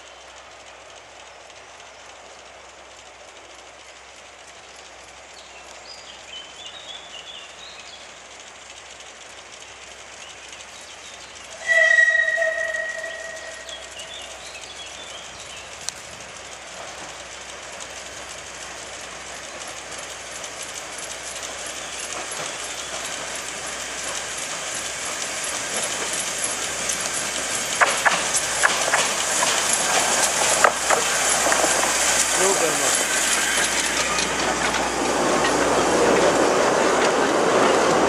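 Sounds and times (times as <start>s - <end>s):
steam locomotive running: 0.0s - 38.0s
sharp clicks and knocks: 15.8s - 38.0s.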